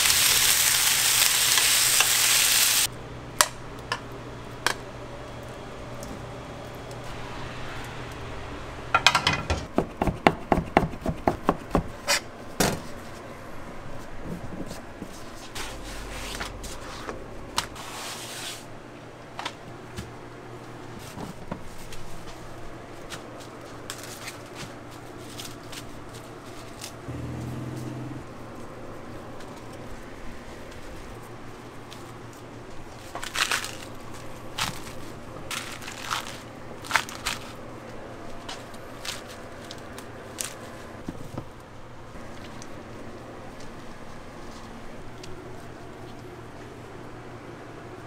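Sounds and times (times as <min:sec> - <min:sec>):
steady low hum: 0:27.0 - 0:33.0.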